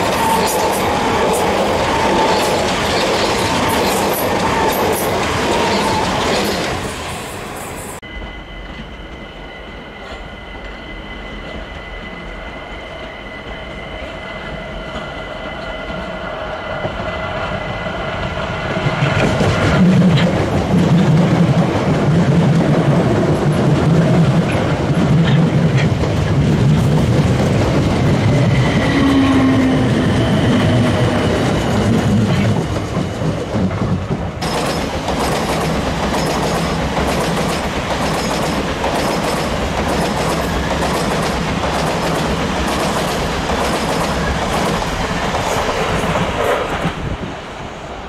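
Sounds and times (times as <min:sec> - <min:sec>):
passing train rumble: 0:00.0 - 0:48.0
train wheels clicking over rail joints: 0:18.7 - 0:47.0.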